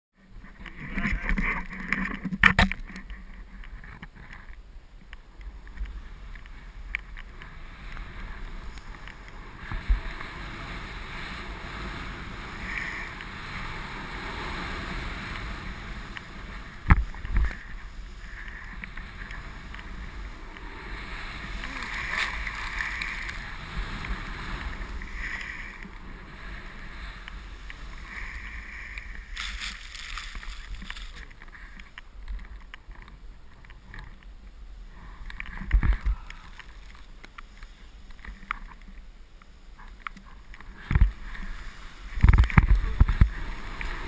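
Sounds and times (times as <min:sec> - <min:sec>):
wind on microphone: 0:00.2 - 0:38.8, 0:39.8 - 0:44.0
snowboard hissing through snow: 0:07.4 - 0:31.7, 0:40.7 - 0:44.0.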